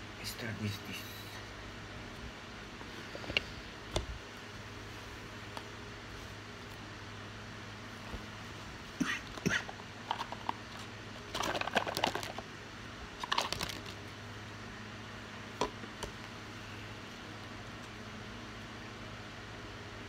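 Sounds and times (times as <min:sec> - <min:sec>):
steady low hum: 0:00.0 - 0:20.0
cards being shuffled: 0:09.3 - 0:12.4, 0:13.2 - 0:14.1.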